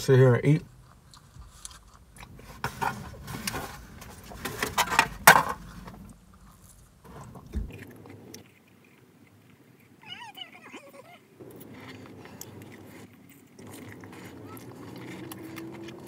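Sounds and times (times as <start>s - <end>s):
person chewing: 0.7s - 4.5s, 6.1s - 10.0s, 11.4s - 16.0s.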